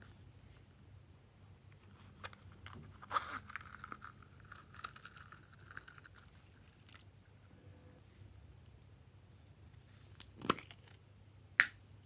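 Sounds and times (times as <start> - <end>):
fidget toy crunch: 2.0 - 7.1.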